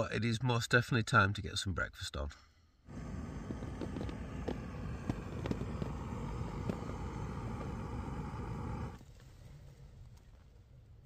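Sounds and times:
gas stove burner running: 0:02.9 - 0:09.0.

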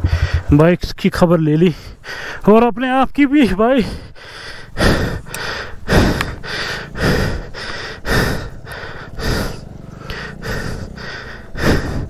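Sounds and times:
person breathing hard: 0:00.0 - 0:00.5, 0:01.7 - 0:02.4, 0:03.8 - 0:12.0
steady low rumble: 0:00.0 - 0:02.1.

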